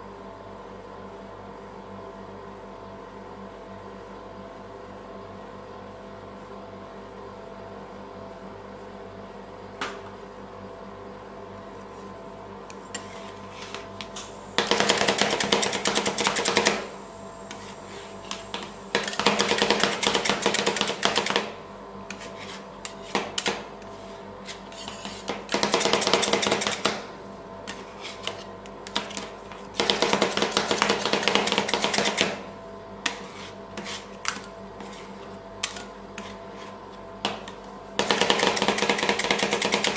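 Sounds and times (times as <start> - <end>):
steady hum: 5.9 - 39.9.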